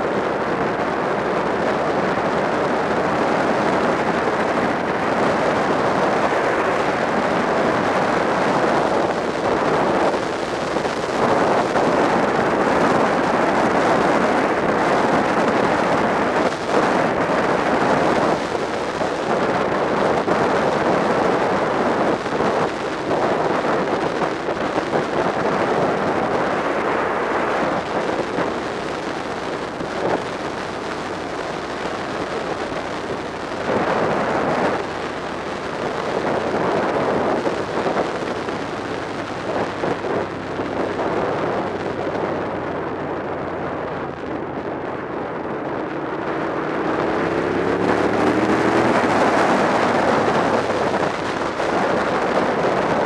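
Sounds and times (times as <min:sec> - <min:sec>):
road noise: 0:00.0 - 0:53.0
wind rushing over microphone: 0:00.0 - 0:53.0
motorcycle engine running: 0:27.8 - 0:44.1.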